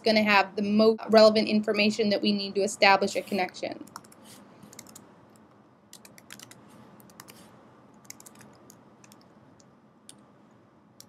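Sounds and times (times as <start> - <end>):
faint keyboard typing: 3.8 - 11.0.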